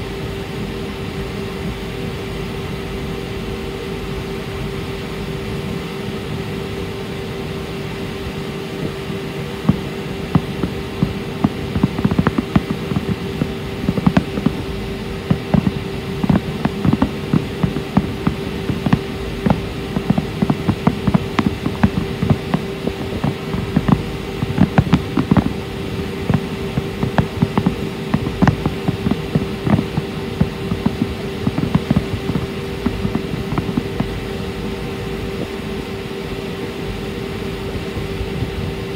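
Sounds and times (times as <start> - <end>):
steady hum: 0.0 - 38.9
fireworks bangs and crackles: 9.6 - 34.3.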